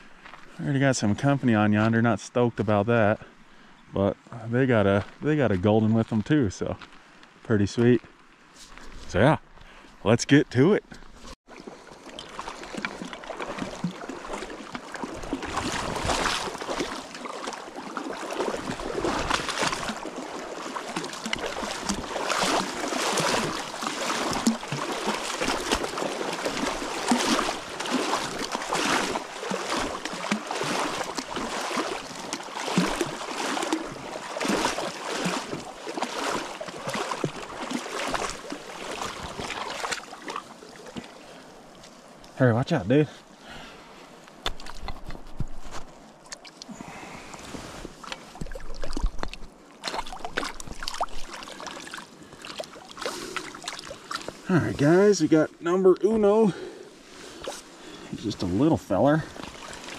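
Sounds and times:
river water rushing and splashing: 11.5 - 42.2, 46.2 - 59.9.

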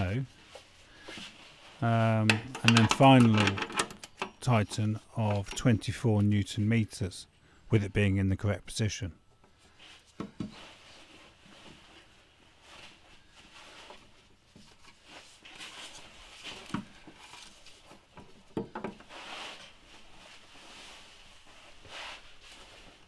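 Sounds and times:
soft handling rustling: 0.0 - 3.6, 9.3 - 23.0.

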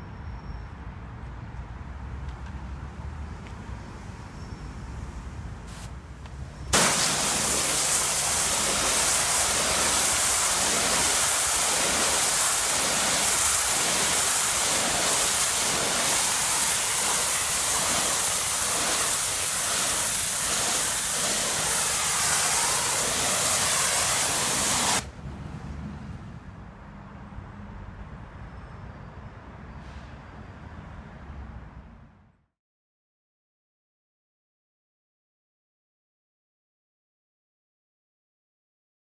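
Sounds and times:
pressure washer spraying brick wall: 6.7 - 25.1.

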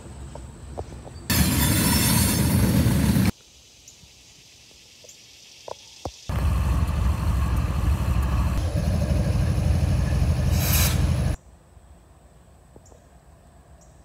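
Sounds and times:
rail noise: 0.0 - 3.4, 6.3 - 11.4
diesel locomotive engine throbbing: 1.3 - 3.3, 6.3 - 11.4
brief hiss: 10.4 - 11.4.

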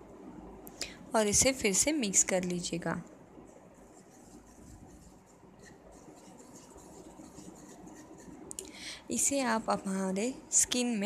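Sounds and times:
spoon stirring in a ceramic bowl: 3.5 - 8.6.

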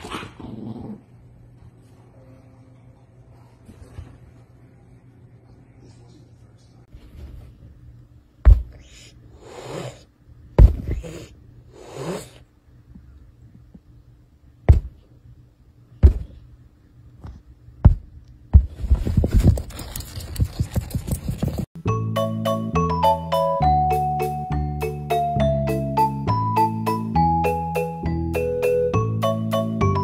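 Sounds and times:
fast scratching and rustling: 18.7 - 21.7.

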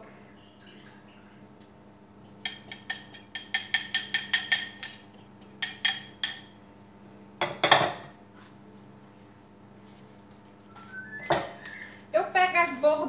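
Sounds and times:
utensil clinking in glass bowl: 2.2 - 6.5.

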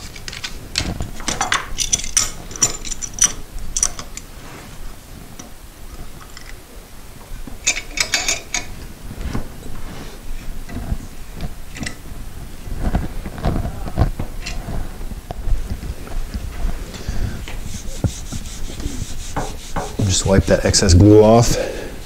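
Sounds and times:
metallic clamp clicks and rattles: 0.0 - 4.3.

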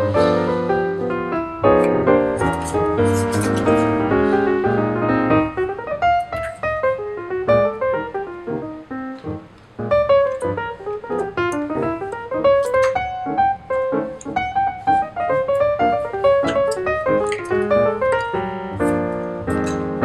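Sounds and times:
instrumental music: 0.0 - 20.0.

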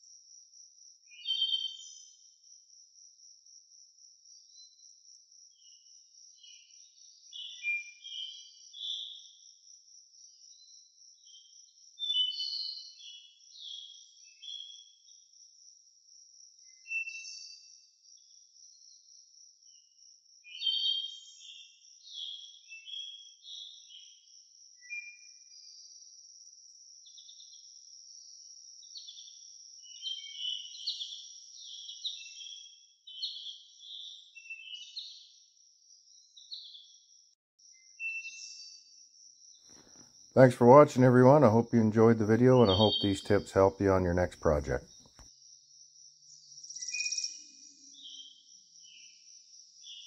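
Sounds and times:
birds chirping and calling: 41.9 - 44.0.

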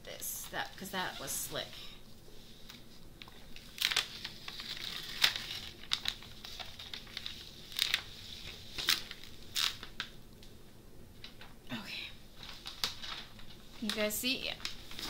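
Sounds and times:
plastic film crinkling: 2.4 - 10.6, 12.2 - 15.0.

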